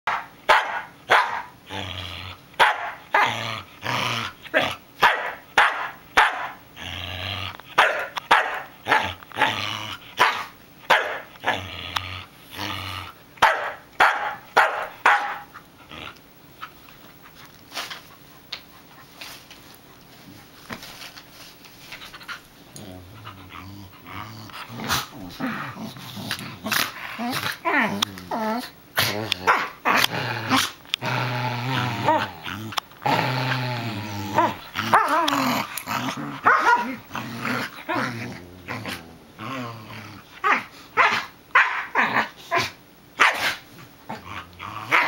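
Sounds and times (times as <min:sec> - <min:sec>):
dog barking: 0:00.1 - 0:01.5, 0:02.6 - 0:03.0, 0:05.0 - 0:06.6, 0:07.8 - 0:08.7, 0:10.2 - 0:11.2, 0:13.4 - 0:15.4, 0:36.5 - 0:37.0, 0:41.0 - 0:41.9, 0:42.6 - 0:43.6
dog growling: 0:01.4 - 0:04.8, 0:06.7 - 0:07.8, 0:08.8 - 0:10.5, 0:11.2 - 0:13.2, 0:15.4 - 0:16.2, 0:22.2 - 0:40.9, 0:43.5 - 0:45.0.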